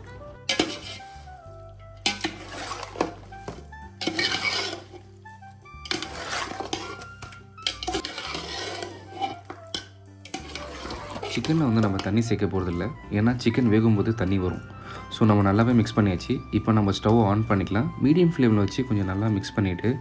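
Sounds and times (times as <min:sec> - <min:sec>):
background music: 0:00.0 - 0:20.0
stirring chicken in marinade: 0:00.4 - 0:01.4, 0:02.0 - 0:05.1, 0:05.7 - 0:14.2.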